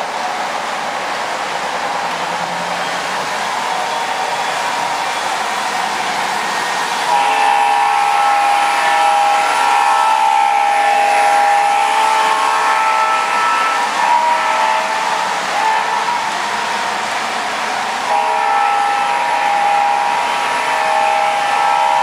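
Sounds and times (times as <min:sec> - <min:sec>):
model train running on track: 0:00.0 - 0:22.0
model train horn chord: 0:07.0 - 0:17.0, 0:17.6 - 0:22.0.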